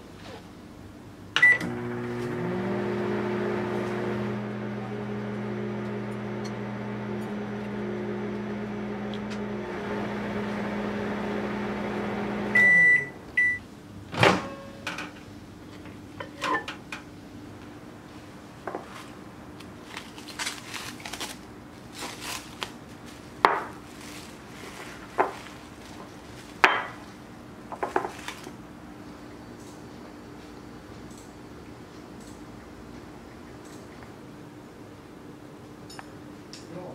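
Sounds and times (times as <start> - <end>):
microwave oven humming: 1.3 - 18.0
microwave beeps: 1.4 - 1.8, 12.4 - 13.6
plastic wrap crinkling: 19.0 - 26.6, 27.8 - 28.5.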